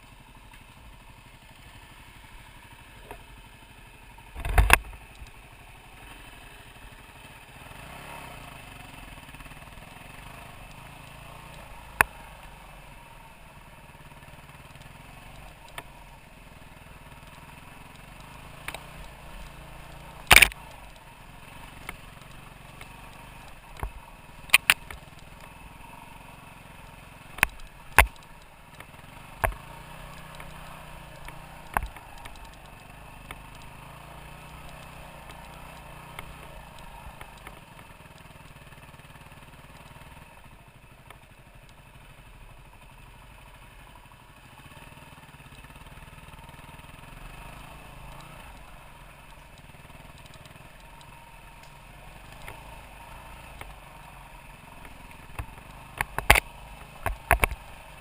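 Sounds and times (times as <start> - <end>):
motorcycle engine running: 0.0 - 58.0
motorcycle knocks and clatters: 4.3 - 5.3, 26.8 - 33.8, 54.7 - 58.0.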